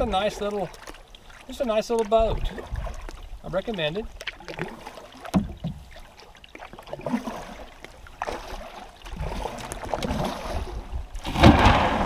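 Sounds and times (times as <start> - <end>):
water trickling off blades: 0.0 - 11.9
paddle strokes splashing: 0.0 - 12.0
small knocks: 5.2 - 5.8.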